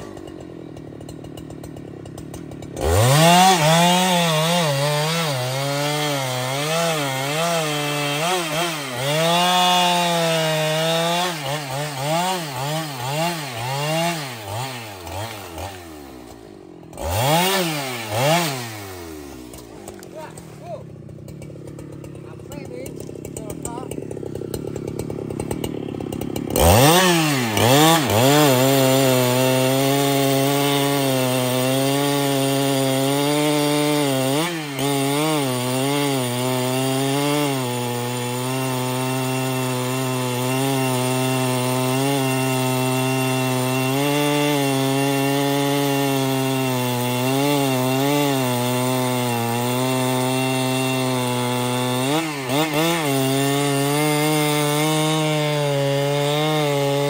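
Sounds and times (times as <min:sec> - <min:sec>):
chainsaw cutting log: 0:00.0 - 0:57.0.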